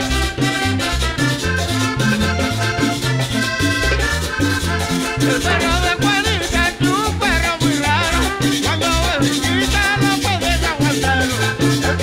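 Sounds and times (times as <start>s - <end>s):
band playing: 0.0s - 12.0s
button accordion: 0.0s - 12.0s
metal scraper scraped in rhythm: 1.7s - 12.0s.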